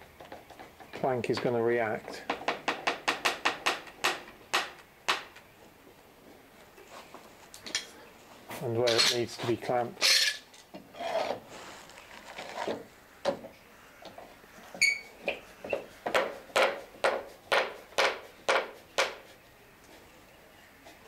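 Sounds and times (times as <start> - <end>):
knocks on wood: 15.7 - 19.2.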